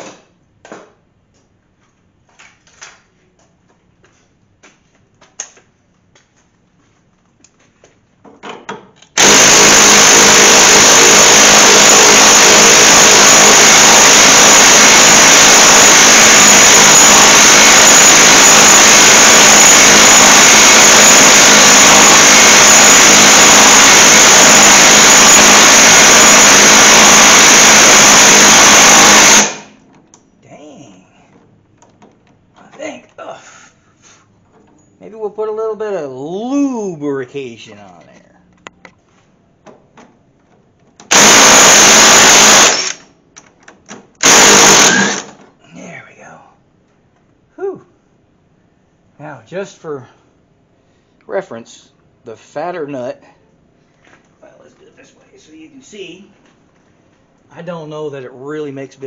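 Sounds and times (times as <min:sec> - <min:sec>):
loud power tool running: 0:09.2 - 0:29.8, 0:41.1 - 0:43.0, 0:44.2 - 0:45.3
tools clicking and knocking: 0:31.3 - 0:33.2.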